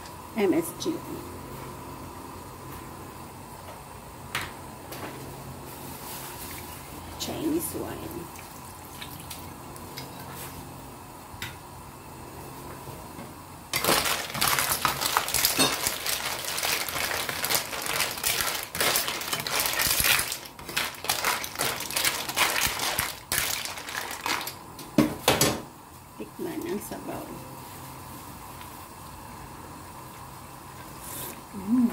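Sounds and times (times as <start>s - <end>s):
broth simmering: 6.1s - 12.2s
clam shells clattering in a pan: 13.8s - 24.6s.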